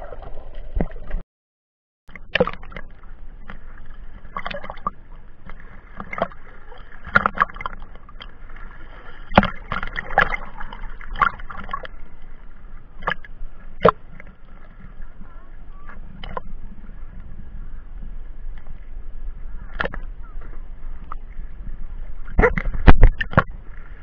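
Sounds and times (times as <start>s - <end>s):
water splashing against camera case: 2.1s - 8.6s, 9.2s - 12.0s, 13.0s - 14.4s, 22.3s - 23.7s.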